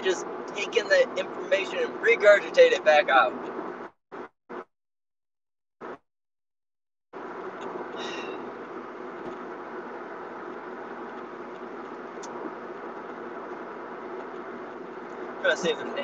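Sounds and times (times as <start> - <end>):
car cabin noise: 7.2 - 16.0.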